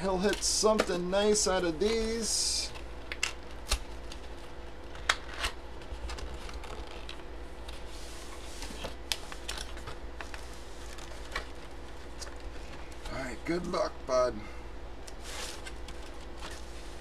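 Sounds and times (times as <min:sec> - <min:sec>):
cardboard rustling and scraping: 0:04.1 - 0:12.8, 0:15.2 - 0:17.0.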